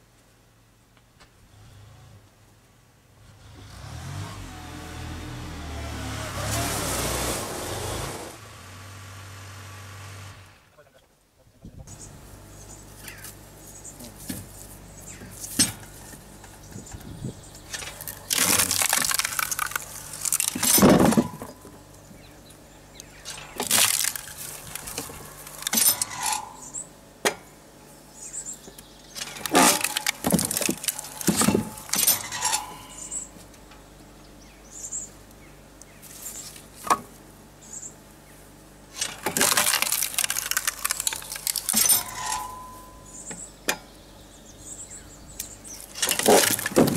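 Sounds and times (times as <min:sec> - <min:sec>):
wood creaking and cracking: 0:15.5 - 0:21.8, 0:23.1 - 0:26.8, 0:29.1 - 0:33.3, 0:39.0 - 0:42.7, 0:45.7 - 0:46.9
knocks of wood: 0:46.0 - 0:46.9.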